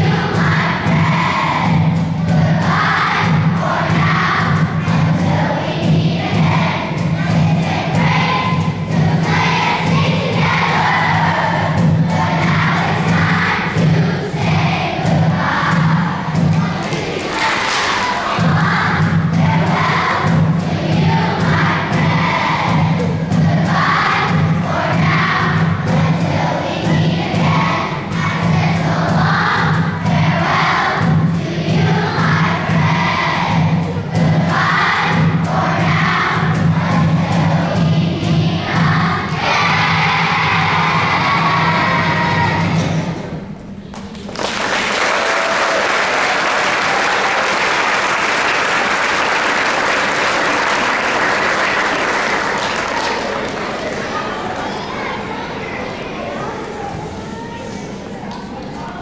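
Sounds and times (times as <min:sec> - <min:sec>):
group of voices singing: 0:00.0 - 0:43.4
audience applauding: 0:44.2 - 0:55.0.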